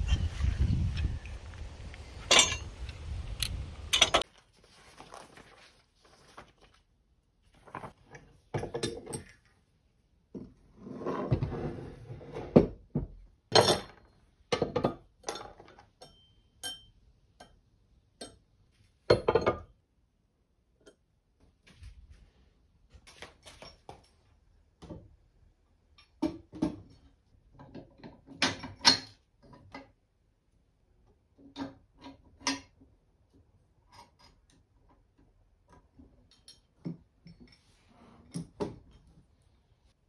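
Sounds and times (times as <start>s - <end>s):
metal hardware clinking on wood: 2.2s - 2.7s, 3.9s - 4.2s.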